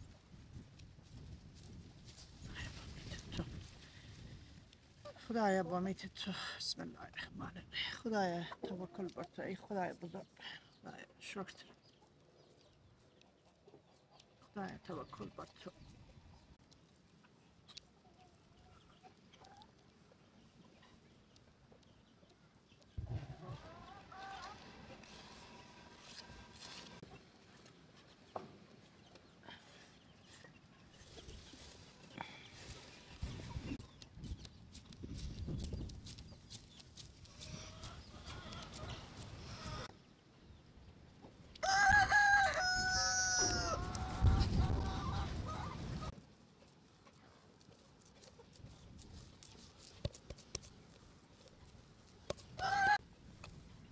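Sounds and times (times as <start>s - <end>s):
chickens clucking: 17.2s - 34.8s, 35.6s - 39.9s, 41.2s - 46.2s
rooster crowing: 41.6s - 43.9s
wavering chicken calls: 41.6s - 46.1s, 52.6s - 53.0s.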